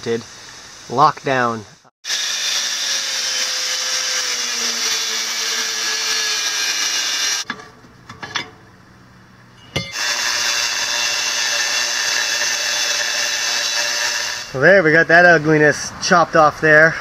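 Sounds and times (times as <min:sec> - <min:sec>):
angle grinder cutting steel: 0:02.0 - 0:07.5, 0:09.8 - 0:14.6.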